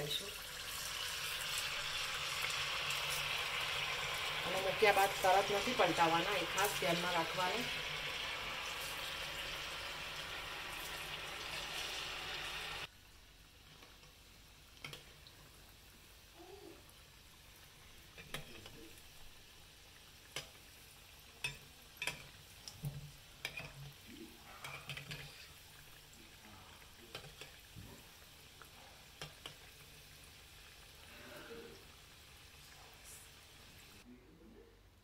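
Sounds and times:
food sizzling in oil: 0.0s - 34.1s
spatula scraping pan: 23.4s - 25.6s.

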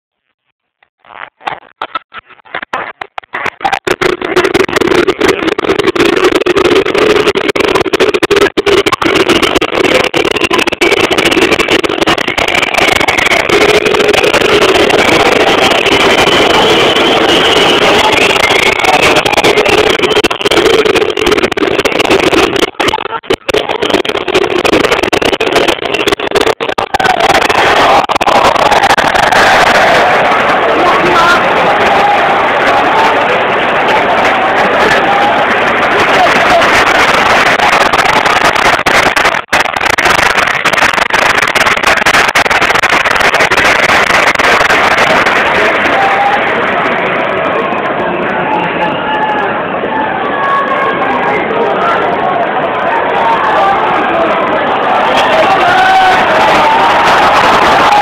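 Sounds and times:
stadium crowd roaring: 2.6s - 58.0s.

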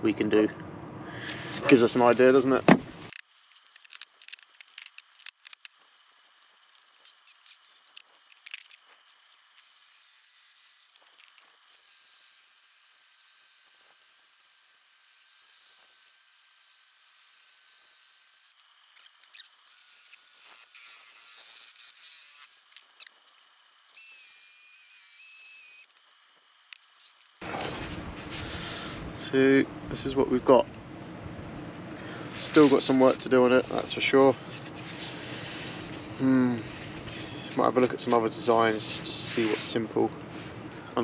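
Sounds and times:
drill motor whine: 5.0s - 27.5s.

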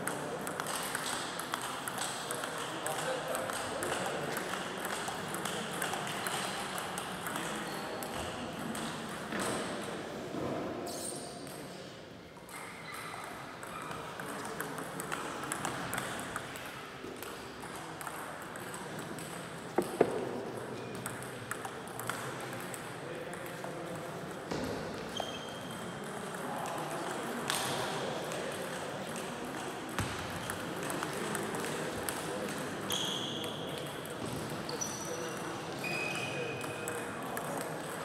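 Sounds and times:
table tennis balls clicking: 0.0s - 9.7s, 13.6s - 24.5s, 36.6s - 38.0s.

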